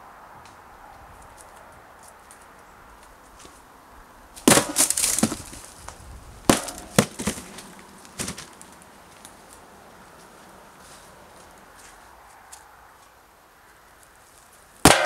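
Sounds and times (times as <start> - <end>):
axe smashing into cardboard boxes: 4.5 - 5.5, 6.5 - 8.5
cardboard crumpling and clattering: 4.5 - 5.8, 6.6 - 8.7.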